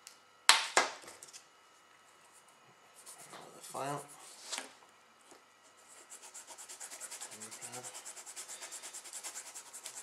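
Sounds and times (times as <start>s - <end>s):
file rasping on plastic: 6.1s - 10.0s.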